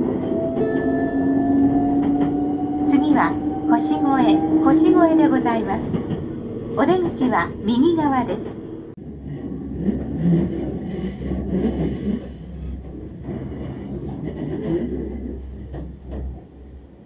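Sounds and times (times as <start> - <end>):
electric train rumbling: 0.0 - 17.0.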